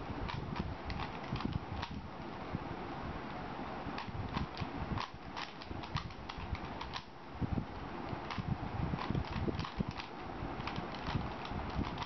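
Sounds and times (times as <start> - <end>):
puzzle cube plastic clicking: 0.3 - 2.0, 4.0 - 7.1, 9.0 - 12.0.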